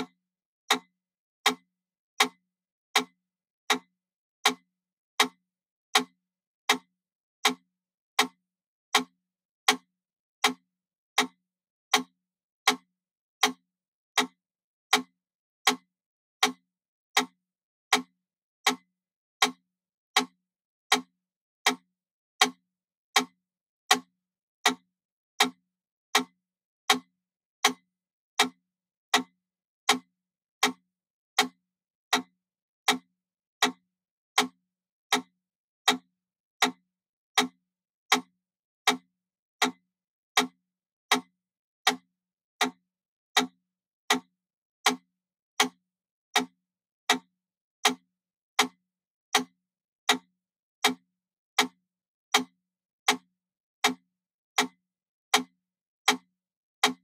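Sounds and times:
metronome ticking: 37.4s - 38.3s, 40.4s - 41.3s, 41.9s - 45.8s.

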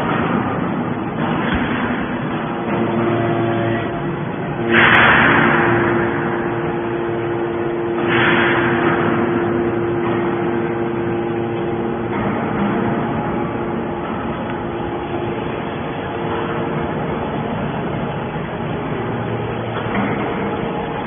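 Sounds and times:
hydraulic power unit hum: 0.0s - 21.0s
loud hydraulic hissing: 4.6s - 11.1s.

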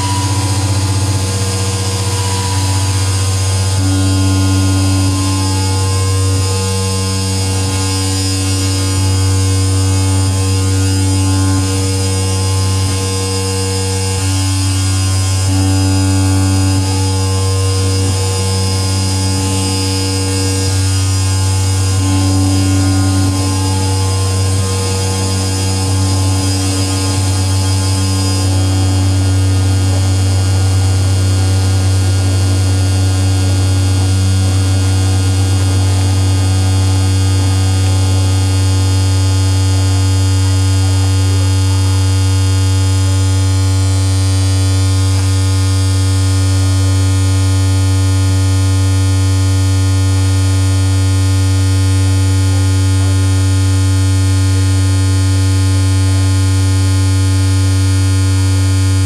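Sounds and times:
faint synth sweep: 0.0s - 37.1s
electronic drone: 0.0s - 59.0s.

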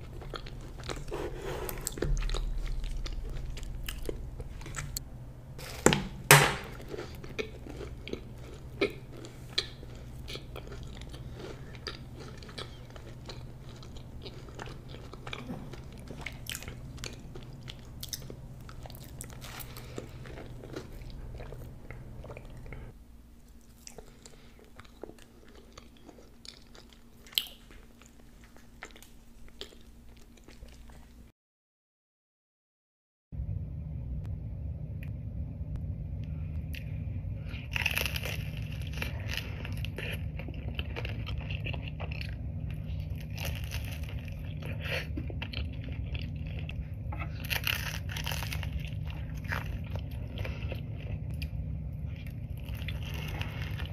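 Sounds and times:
food crunching: 0.0s - 5.0s, 5.6s - 31.2s, 36.6s - 53.9s
person chewing and biting: 0.0s - 5.0s, 5.6s - 31.2s, 37.5s - 53.9s.

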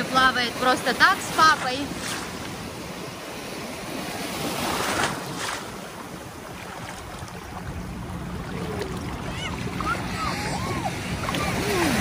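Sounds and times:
sea water washing and splashing: 0.0s - 12.0s.

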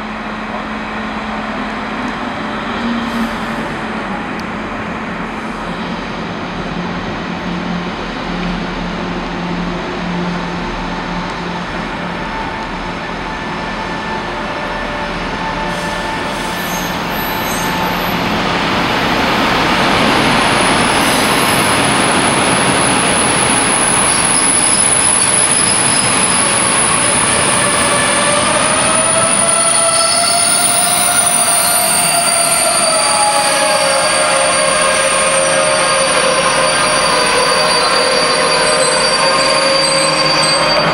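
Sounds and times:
freight train passing: 0.0s - 40.9s
wheels and brakes squealing: 15.4s - 18.3s, 22.4s - 40.9s.

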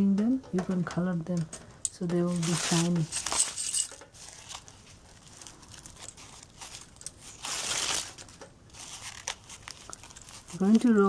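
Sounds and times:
fabric rustling: 2.2s - 11.0s.

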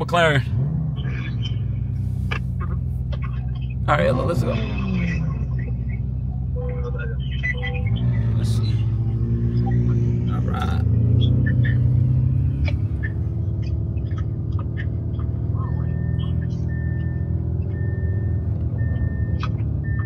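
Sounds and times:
car engine drone: 0.0s - 20.0s
high beep warning chime: 6.6s - 8.4s.

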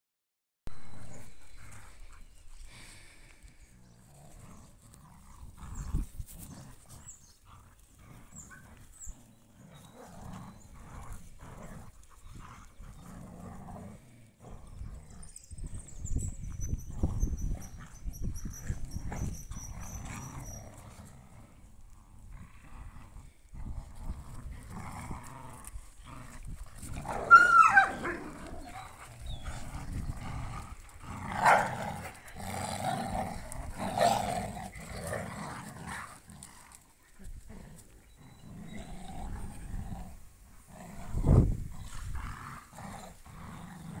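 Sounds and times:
dogs growling: 0.8s - 44.0s
dog yelping: 27.1s - 28.9s.

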